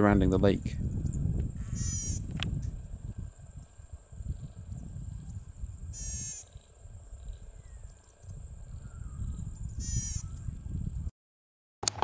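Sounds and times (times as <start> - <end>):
bird giving short buzzy call: 1.7 - 2.3, 5.9 - 6.5, 9.8 - 10.3.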